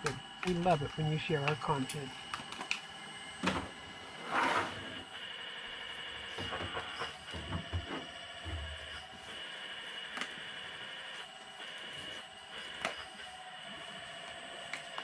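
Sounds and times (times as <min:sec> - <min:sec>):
high pump whine: 0:00.0 - 0:15.0.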